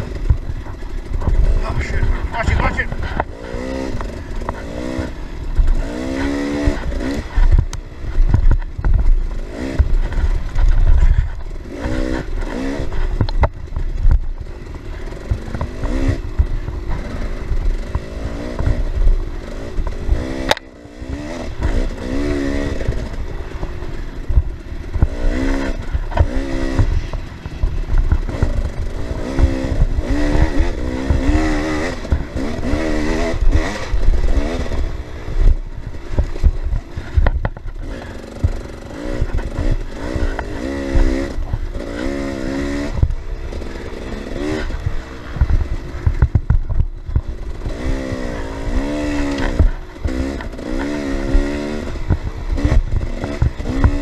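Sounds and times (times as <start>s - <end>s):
dirt bike engine revving: 0.0s - 54.0s
wind rumble: 0.0s - 54.0s.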